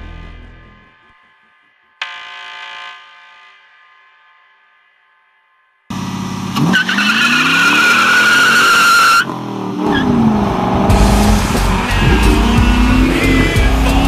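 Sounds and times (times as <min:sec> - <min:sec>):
car engine revving: 0:05.9 - 0:14.0
tires squealing: 0:05.9 - 0:14.0.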